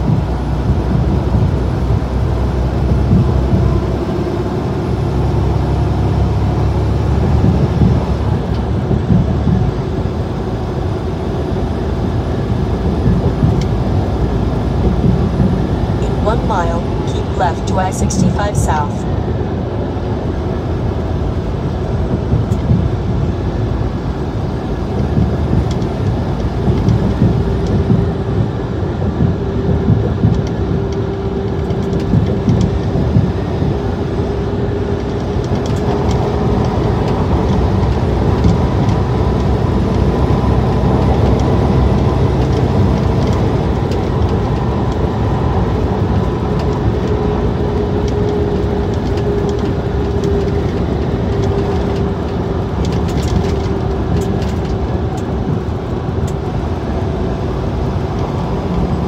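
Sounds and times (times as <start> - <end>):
truck road and engine rumble: 0.0 - 59.0.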